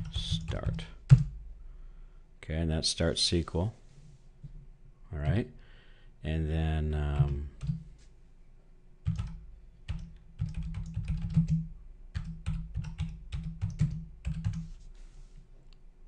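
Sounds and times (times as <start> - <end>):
typing on computer keyboard: 7.2 - 7.8, 9.0 - 14.7.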